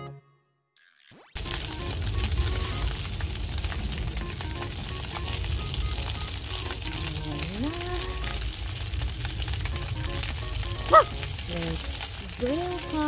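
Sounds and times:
food sizzling on a grill: 1.4 - 13.0
soft background music: 9.8 - 13.0.

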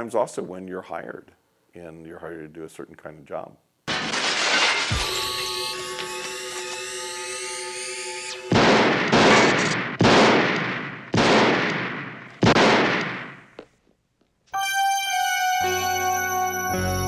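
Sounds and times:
electronic horror score: 4.9 - 9.8
handgun shots with echo: 8.6 - 13.4.

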